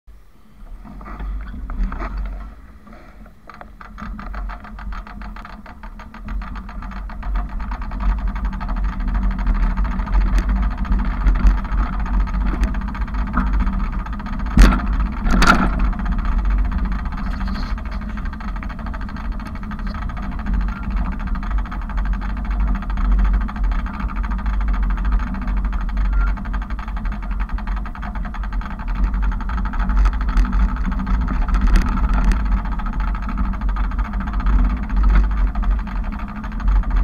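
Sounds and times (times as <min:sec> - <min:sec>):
bicycle low rumble: 0:00.1 - 0:37.0
rapid ticking: 0:00.6 - 0:37.0
loud knocks: 0:11.3 - 0:21.0.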